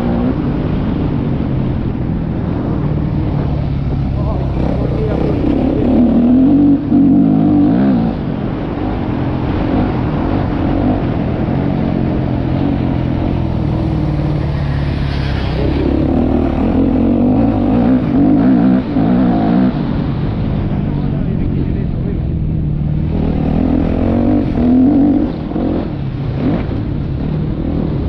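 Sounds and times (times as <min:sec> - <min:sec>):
motocross bike engine revving: 0:02.5 - 0:20.9, 0:21.6 - 0:28.0.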